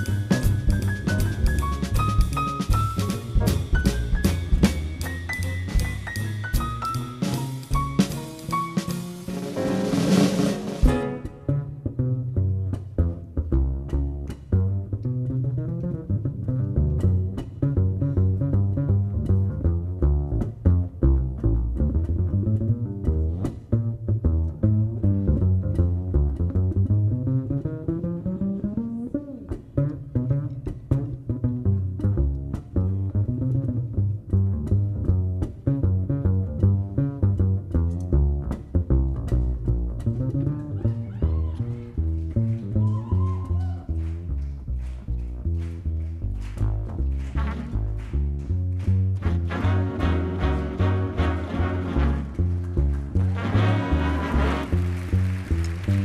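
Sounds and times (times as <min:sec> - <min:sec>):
drum kit ticks: 0:00.0 - 0:09.8, 0:12.7 - 0:28.4, 0:29.5 - 0:43.6
big band swing jazz: 0:00.0 - 0:56.0
plucked double bass solo: 0:00.0 - 0:56.0.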